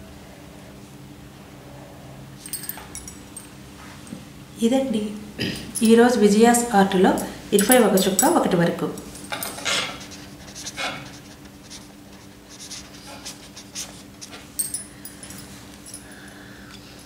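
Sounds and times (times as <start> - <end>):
pen scratching on paper: 9.7 - 14.3.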